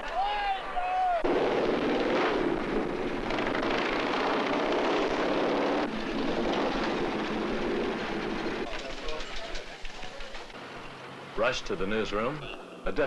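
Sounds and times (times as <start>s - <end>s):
road noise: 2.2s - 13.0s.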